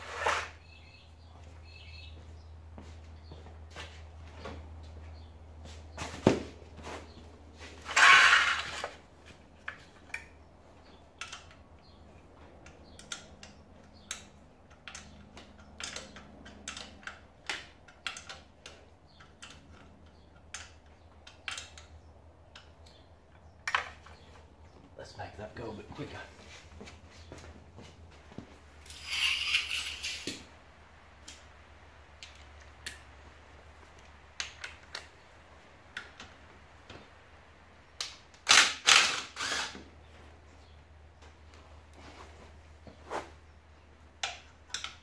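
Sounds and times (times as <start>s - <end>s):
metal tools clinking and knocking: 32.2s - 33.0s.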